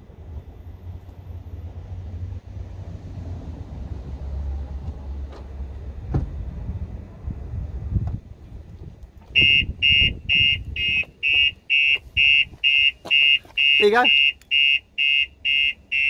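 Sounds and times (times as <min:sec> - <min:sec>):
alarm siren pulsing beep: 0:09.4 - 0:16.0.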